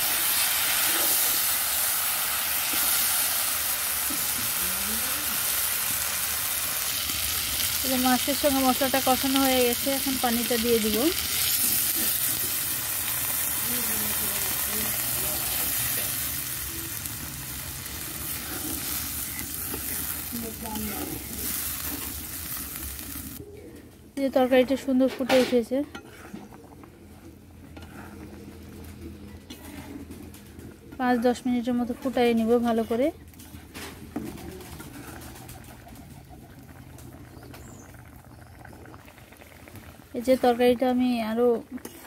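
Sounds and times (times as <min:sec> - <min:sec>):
fish sizzling in a pan: 0:00.0 - 0:23.4
spatula stirring a pan: 0:10.0 - 0:23.0, 0:27.6 - 0:28.6.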